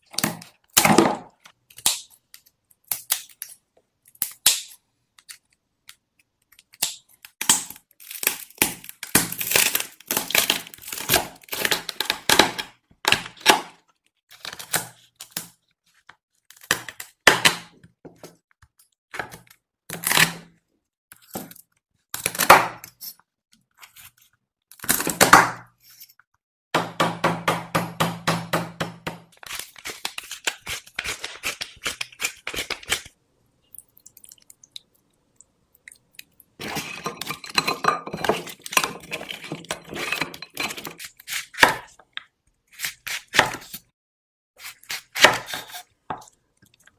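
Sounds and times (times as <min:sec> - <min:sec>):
knife chopping on wooden board: 0:26.8 - 0:29.4, 0:43.0 - 0:43.6, 0:44.9 - 0:46.2.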